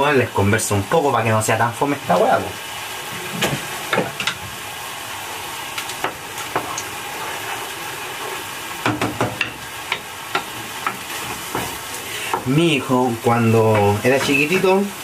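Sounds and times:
food sizzling in a pan: 0:00.0 - 0:15.0
wooden spoon knocking on pan: 0:08.8 - 0:12.5.

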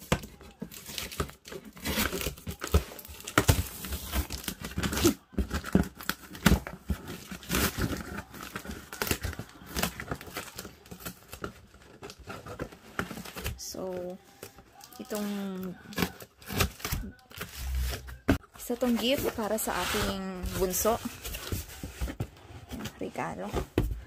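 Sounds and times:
packing tape peeled off cardboard: 0:00.8 - 0:13.6, 0:15.9 - 0:18.4.

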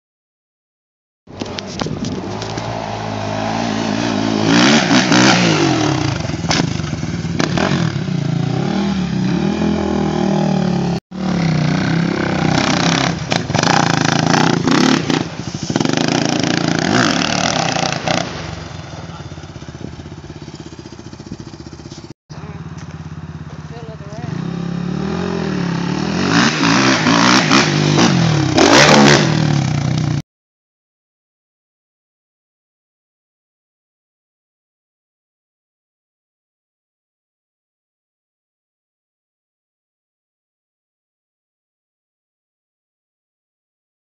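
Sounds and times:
quad engine revving: 0:01.4 - 0:30.2.

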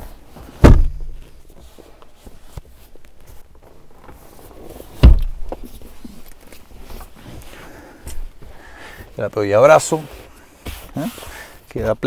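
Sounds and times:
heavy thumps of seats set down: 0:00.4 - 0:01.4, 0:04.8 - 0:06.0.

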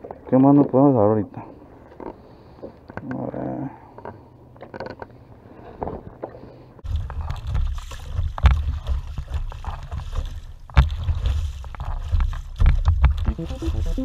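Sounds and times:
paddle splashing in water: 0:06.8 - 0:14.0
sharp knocks or splashes: 0:06.8 - 0:14.0
wind rumbling on microphone: 0:06.8 - 0:14.0.

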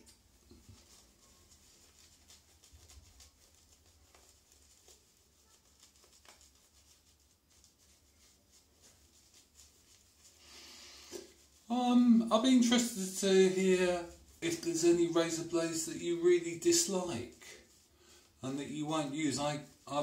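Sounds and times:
shaving brush swishing: 0:00.0 - 0:20.0.

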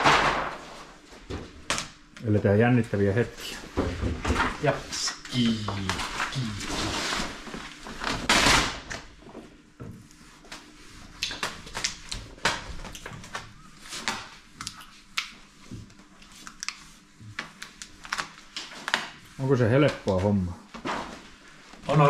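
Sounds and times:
plastic film rustling and crackling: 0:16.0 - 0:22.0.

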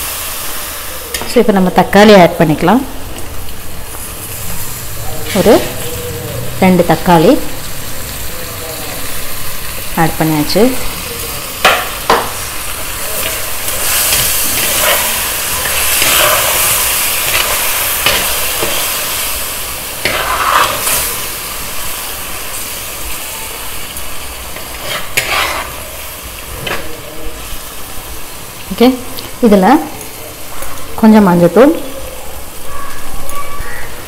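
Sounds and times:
food sizzling in hot oil: 0:00.0 - 0:34.0
metal spatula scraping a pan: 0:13.1 - 0:19.3, 0:20.0 - 0:21.3, 0:24.5 - 0:27.0.

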